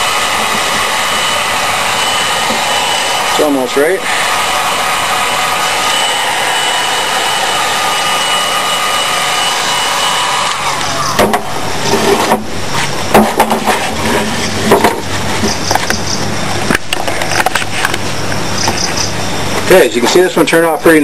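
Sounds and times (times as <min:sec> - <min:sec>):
heat gun blower running: 0:00.0 - 0:16.0.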